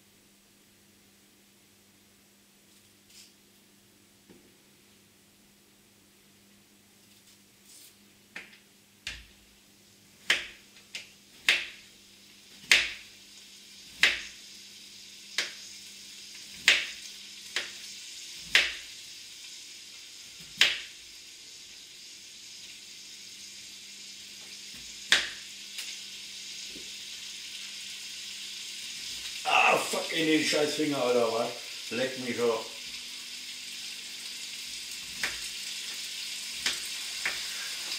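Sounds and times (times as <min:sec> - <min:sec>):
bacon sizzling in a pan: 0:09.1 - 0:37.9.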